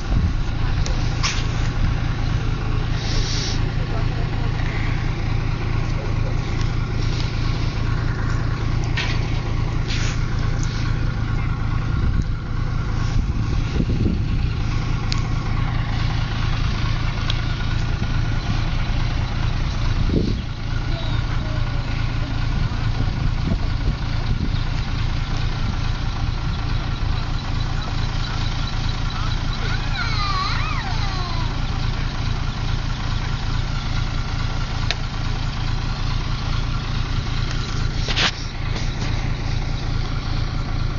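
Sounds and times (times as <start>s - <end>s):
large engine running: 0.0s - 40.9s
voices in background: 0.5s - 8.9s, 20.4s - 24.2s.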